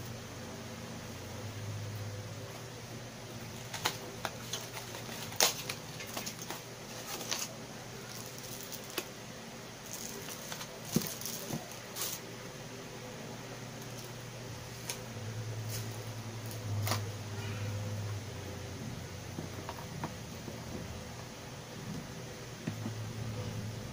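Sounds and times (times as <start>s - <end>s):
low steady hum: 0.0s - 23.9s
cardboard and plastic rustling: 3.5s - 9.1s, 9.8s - 12.3s.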